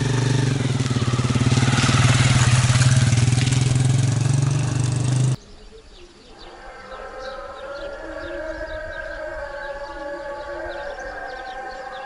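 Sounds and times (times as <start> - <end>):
small motorcycle engine passing: 0.0 - 5.4.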